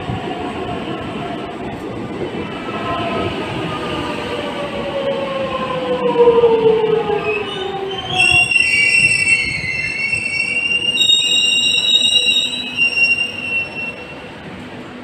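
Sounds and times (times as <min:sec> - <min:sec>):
train wheels squealing on rails: 0:07.1 - 0:14.3.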